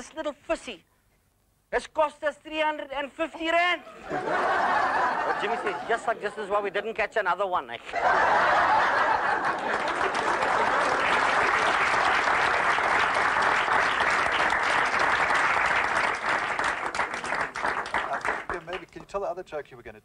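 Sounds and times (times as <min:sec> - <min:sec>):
audience applauding: 0:08.0 - 0:19.1.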